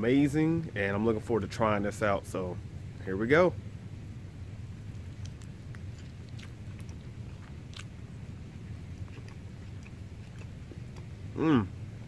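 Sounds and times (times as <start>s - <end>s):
low background noise: 0.0s - 12.0s
person biting and chewing: 4.8s - 11.5s
meat tearing clicks: 4.9s - 8.0s.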